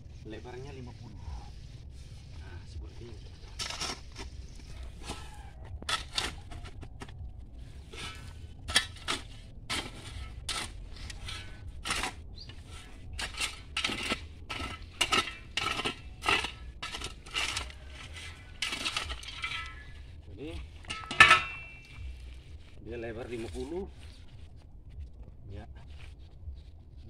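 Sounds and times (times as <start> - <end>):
shovel chopping into dry soil: 3.6 - 7.1, 7.8 - 19.9.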